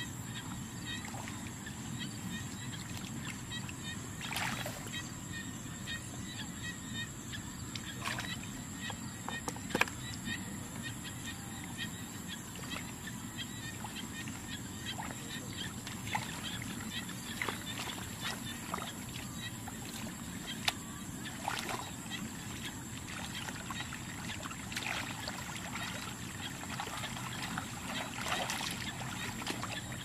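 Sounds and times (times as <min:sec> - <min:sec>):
hands sloshing in muddy water: 0:13.8 - 0:30.0.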